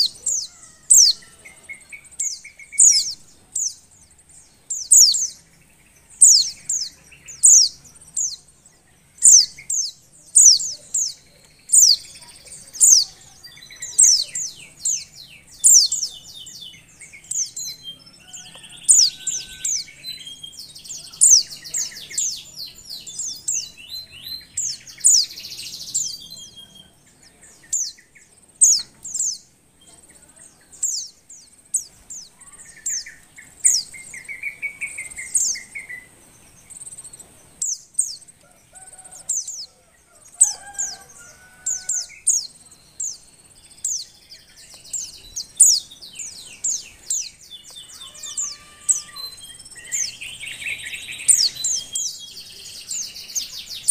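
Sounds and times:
bird warbling: 0.0 - 3.8
bird chirping high: 0.0 - 53.9.

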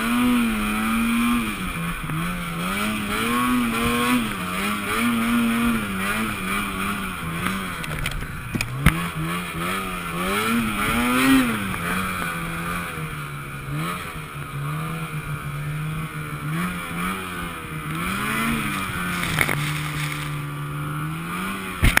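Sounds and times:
snowmobile engine revving: 0.0 - 22.0.

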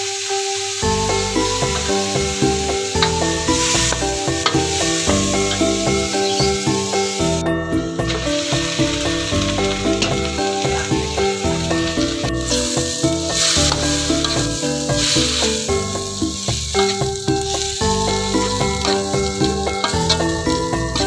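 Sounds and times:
instrumental background music: 0.0 - 21.0
vegetables sizzling in a wok: 0.0 - 21.0.

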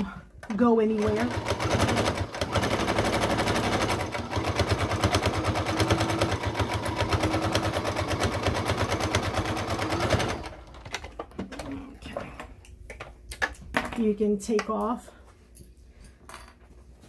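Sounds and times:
sewing machine running fast: 1.0 - 10.8.

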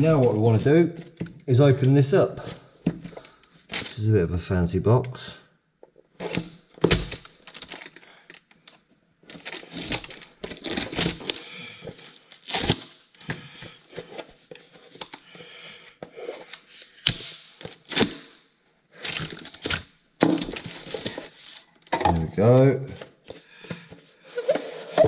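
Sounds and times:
cardboard rustling: 6.2 - 8.0, 9.2 - 15.2, 19.0 - 22.2
cardboard sleeve scraping: 24.2 - 25.0.

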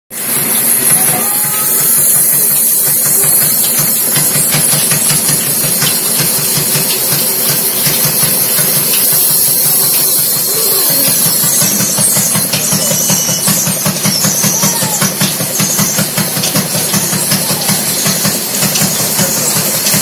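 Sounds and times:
band saw cutting log: 0.1 - 20.0.

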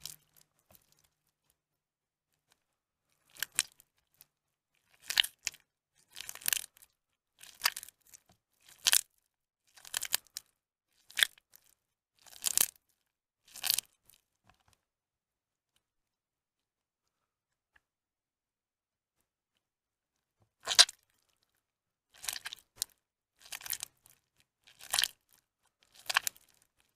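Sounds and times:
wet soap crunching in hand: 4.9 - 6.8, 7.4 - 9.0, 9.7 - 12.8, 20.6 - 21.3, 22.1 - 26.6.

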